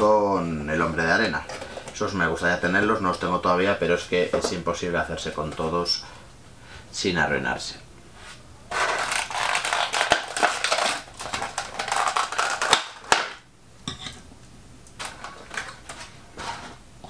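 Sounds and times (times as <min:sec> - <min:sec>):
plastic packaging crinkling: 0:08.7 - 0:13.4, 0:15.0 - 0:16.8.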